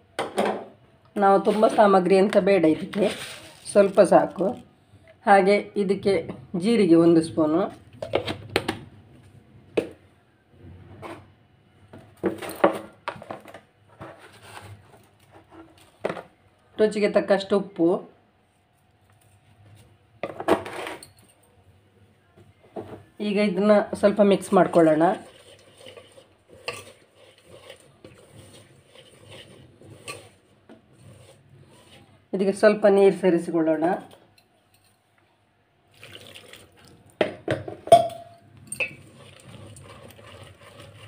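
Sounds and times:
flour rubbing against metal bowl: 0:01.4 - 0:02.0, 0:02.8 - 0:04.5, 0:24.0 - 0:32.7, 0:38.9 - 0:41.0
kitchen utensils clattering: 0:37.6 - 0:41.0.

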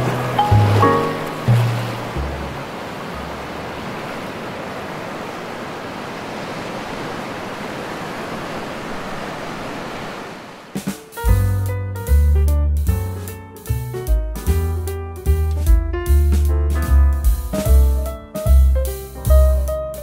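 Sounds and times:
low background music: 0:00.0 - 0:02.8, 0:10.8 - 0:20.0
ocean surf rushing: 0:00.0 - 0:11.3.

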